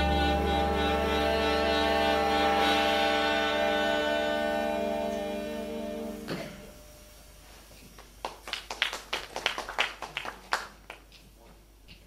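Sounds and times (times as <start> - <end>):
saxophones and trombone chord: 0.0 - 7.3.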